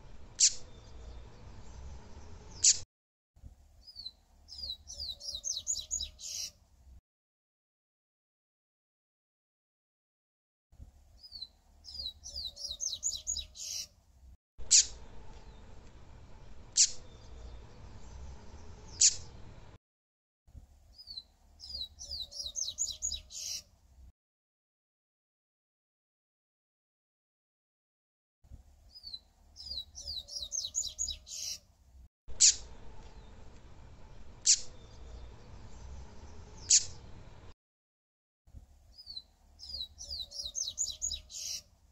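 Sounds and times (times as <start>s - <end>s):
bird singing high downslurred notes: 3.8s - 6.6s, 11.2s - 13.9s, 21.0s - 23.6s, 28.9s - 31.6s, 39.0s - 41.6s.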